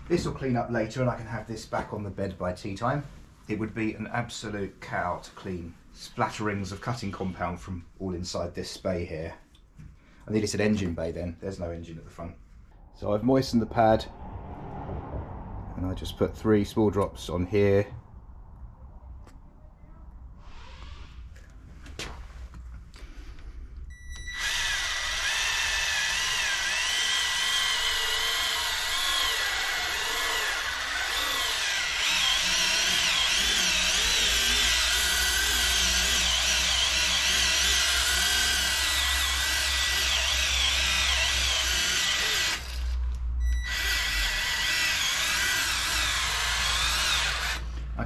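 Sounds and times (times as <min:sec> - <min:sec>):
polisher motor whine: 0:24.1 - 0:43.0, 0:43.6 - 0:47.7.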